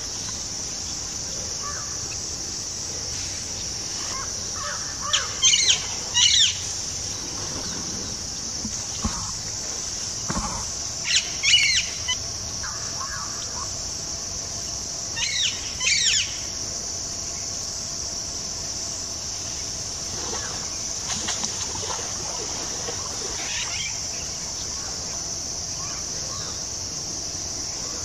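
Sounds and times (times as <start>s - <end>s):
high-pitched insect drone: 0.0s - 28.0s
wild birds calling: 1.2s - 2.2s, 3.2s - 13.8s, 15.1s - 16.5s, 22.3s - 26.7s.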